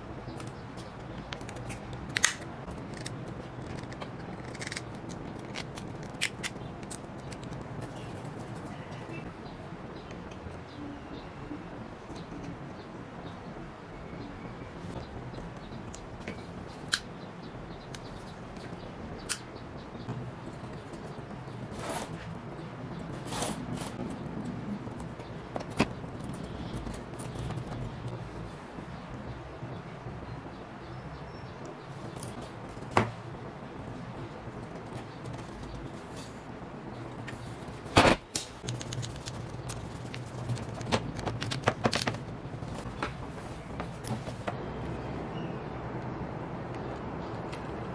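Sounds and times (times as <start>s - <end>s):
plastic parts clicking and knocking: 38.0s - 43.2s.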